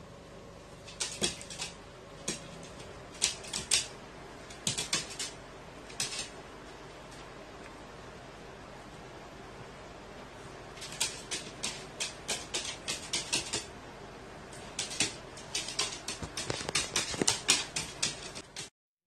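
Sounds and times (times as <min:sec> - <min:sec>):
bird claws clicking on wooden floor: 0:00.9 - 0:03.9, 0:10.8 - 0:13.7, 0:14.7 - 0:18.7.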